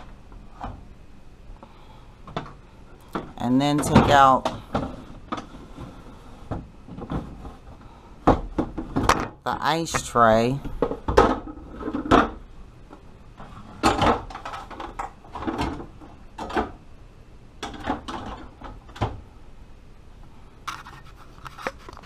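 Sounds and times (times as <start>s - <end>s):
plastic trays knocking and clattering: 2.2s - 5.9s, 6.5s - 7.6s, 8.2s - 12.4s, 13.4s - 16.8s.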